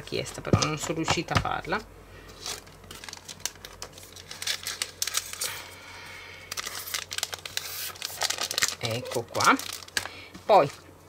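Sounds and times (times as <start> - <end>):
plastic packaging crinkling: 2.3 - 5.6, 6.5 - 10.8
paper sheets rustling: 6.5 - 10.8.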